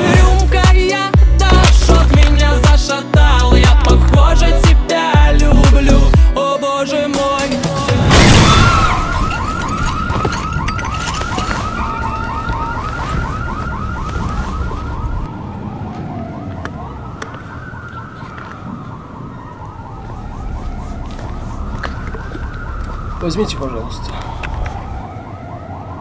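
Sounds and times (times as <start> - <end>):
loud bang: 8.0 - 10.1
siren yelp and wail: 8.1 - 26.0.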